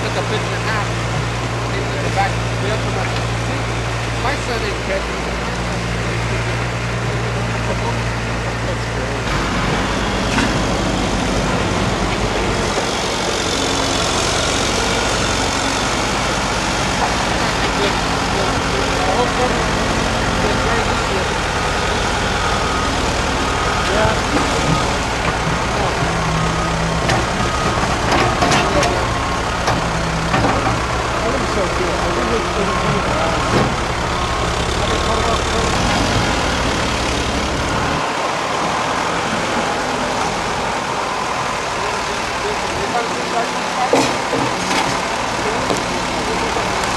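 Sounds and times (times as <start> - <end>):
diesel engines running: 0.0 - 46.9.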